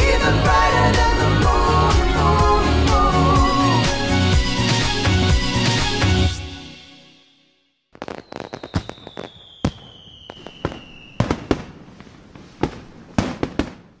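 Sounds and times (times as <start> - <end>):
firework whistle falling: 8.0 - 11.7
fireworks bangs: 8.0 - 14.0.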